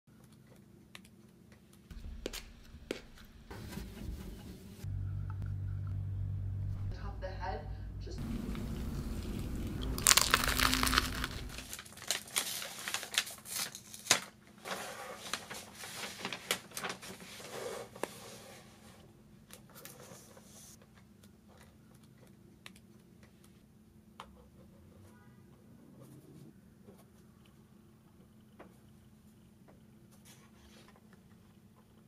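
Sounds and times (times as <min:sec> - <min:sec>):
croissant crust crackling: 0:08.2 - 0:14.4
crisp clicks and rustles: 0:08.2 - 0:17.3.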